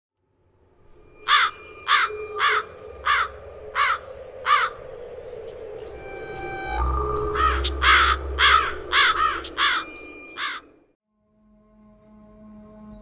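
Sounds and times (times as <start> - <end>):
low drone: 0.2 - 13.0
bird calling: 1.2 - 10.8.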